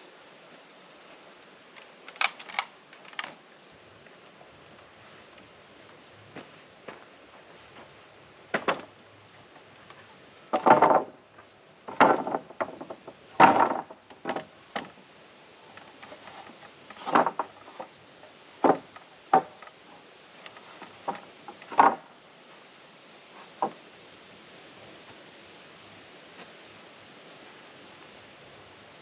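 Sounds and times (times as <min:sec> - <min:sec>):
wooden boards knocking and clattering: 0:08.5 - 0:08.9, 0:10.5 - 0:11.2, 0:11.9 - 0:15.0, 0:15.7 - 0:17.9, 0:18.6 - 0:19.8, 0:20.4 - 0:22.1, 0:23.6 - 0:23.8.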